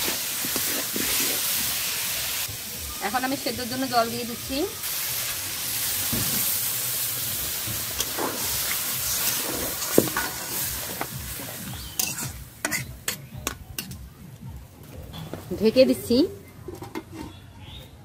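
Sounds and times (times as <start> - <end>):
water sizzling in hot oil: 0.0 - 12.8.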